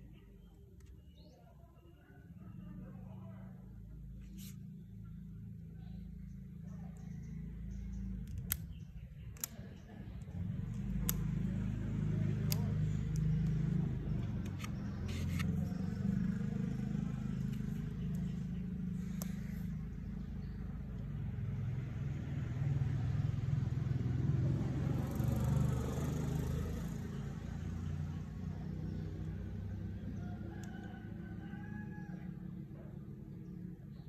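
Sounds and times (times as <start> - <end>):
vehicle engine rumble: 2.3 - 34.0
light plastic clicks: 8.0 - 15.6
rooster crowing: 30.1 - 32.6.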